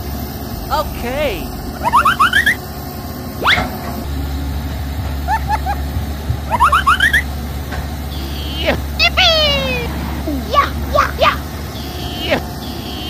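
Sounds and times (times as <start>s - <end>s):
electronic sweeps: 0.0s - 5.9s, 6.5s - 7.3s, 8.1s - 13.0s
toy excavator motors humming: 0.0s - 13.0s
quick rising chirps: 0.4s - 3.8s, 6.5s - 7.3s.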